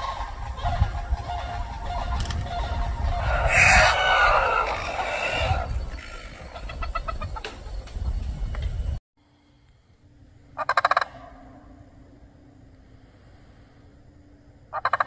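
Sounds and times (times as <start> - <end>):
ducks quacking: 0.0 - 7.6, 10.6 - 11.3, 14.7 - 15.0
wings flapping: 0.0 - 8.6.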